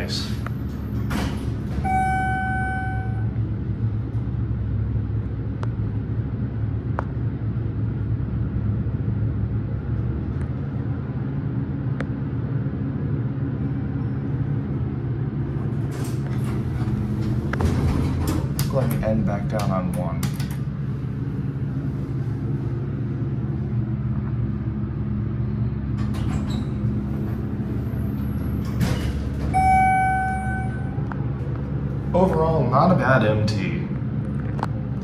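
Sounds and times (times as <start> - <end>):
elevator running low rumble: 0.0 - 35.0
electronic tone: 1.8 - 3.4, 29.5 - 31.2.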